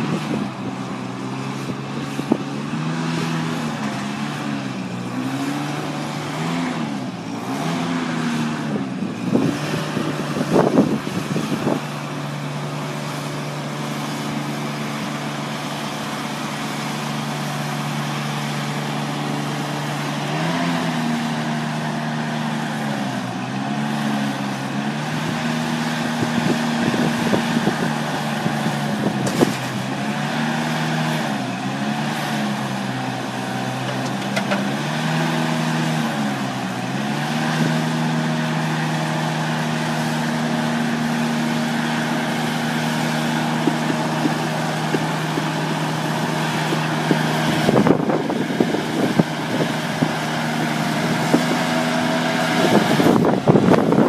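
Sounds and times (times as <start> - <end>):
truck engine running: 0.0 - 54.0.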